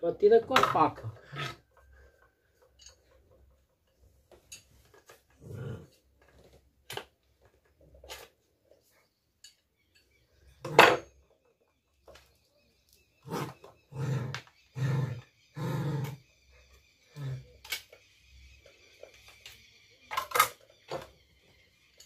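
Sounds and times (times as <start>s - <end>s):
dog growling: 5.4s - 6.0s, 13.2s - 16.3s.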